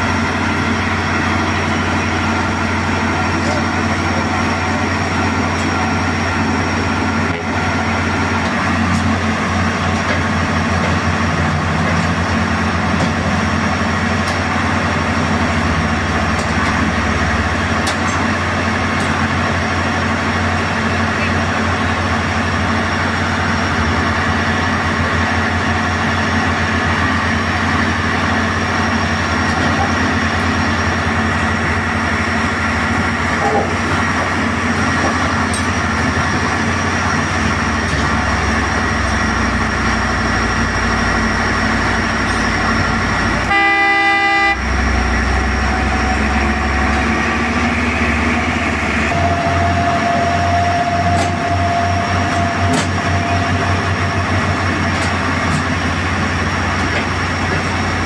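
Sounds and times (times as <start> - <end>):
machine engine droning: 0.0 - 58.0
steady high tone: 38.4 - 54.0
horn: 43.4 - 44.6.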